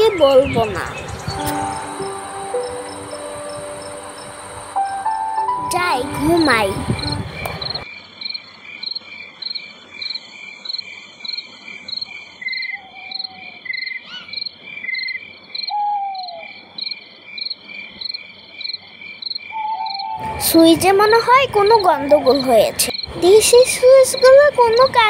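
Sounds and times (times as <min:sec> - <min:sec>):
crickets chirping: 0:00.1 - 0:05.7, 0:06.4 - 0:25.0
falling whistle-like calls: 0:19.5 - 0:20.5.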